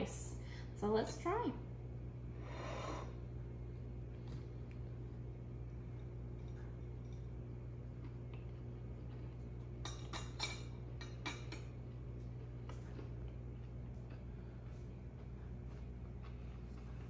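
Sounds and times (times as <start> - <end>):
steady low hum: 0.0 - 17.0
fork clinking on a plate: 9.8 - 11.8.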